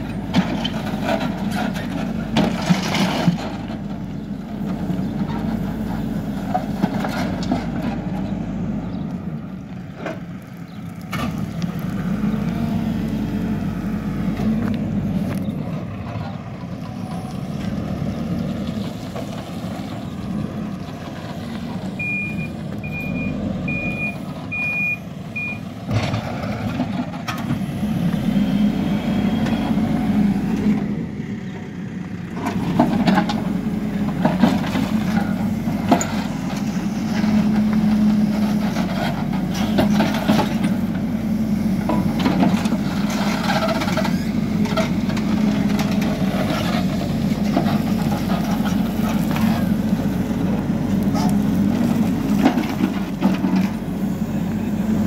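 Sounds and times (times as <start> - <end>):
backhoe engine running: 0.0 - 55.0
reversing alarm beeps: 22.0 - 25.6.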